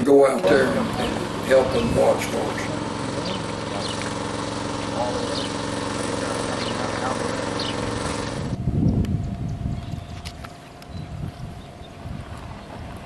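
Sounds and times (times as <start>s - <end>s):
low outdoor rumbling and rustling: 0.0s - 13.0s
steady machine hum: 0.0s - 13.0s
faint voices: 0.3s - 8.0s.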